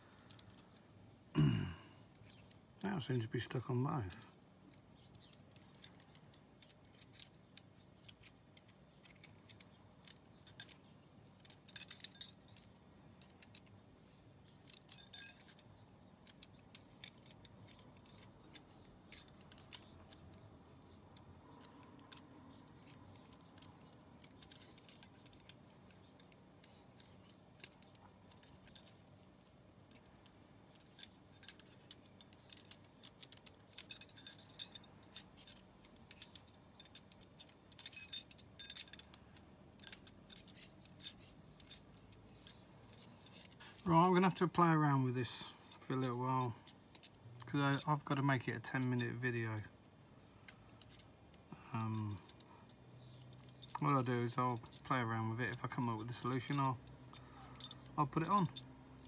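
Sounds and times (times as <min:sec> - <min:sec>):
metal puzzle clinking and rattling: 0:02.2 - 0:13.8, 0:14.4 - 0:29.2, 0:29.9 - 0:44.5, 0:50.5 - 0:59.0.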